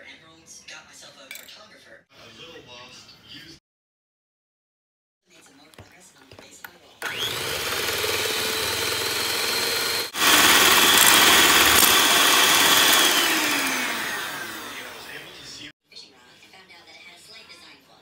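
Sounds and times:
electric hand mixer whining: 7.0s - 15.7s.

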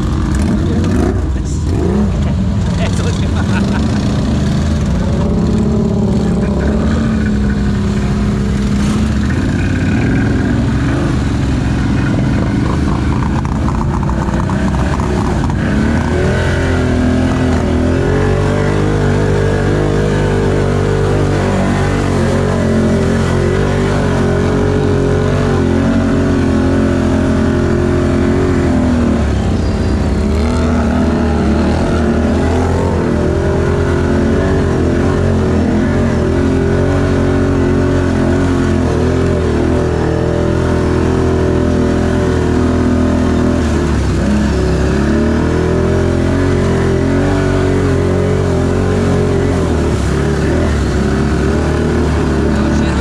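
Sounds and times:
atv engine running hard: 0.0s - 53.0s.

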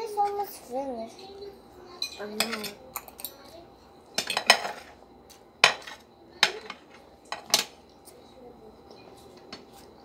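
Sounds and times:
cutlery clinking on plates: 2.0s - 3.4s, 4.1s - 5.0s, 5.6s - 7.9s.

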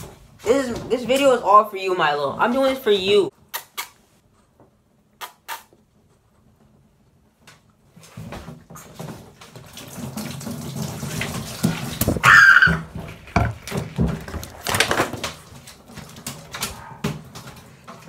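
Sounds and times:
water splashing in sink: 8.0s - 18.0s.

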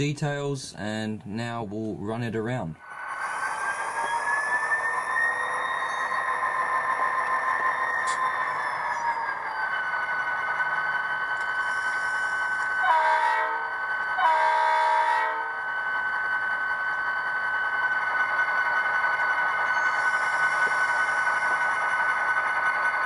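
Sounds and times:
electronic engine sound: 2.8s - 23.0s
model locomotive horn: 11.6s - 15.6s.

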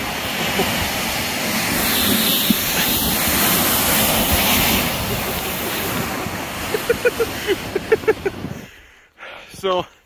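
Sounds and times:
wind noise on microphone: 0.0s - 8.9s
sled hissing over snow: 0.0s - 9.8s.

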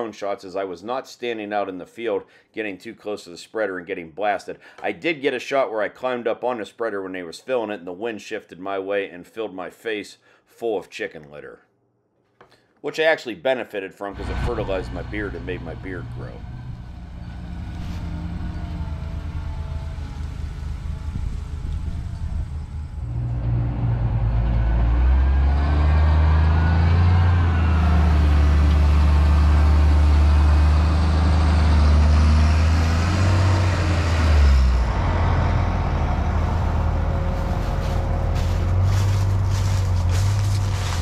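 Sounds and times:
tractor engine droning: 14.2s - 41.0s
wheel loader engine: 14.2s - 41.0s.

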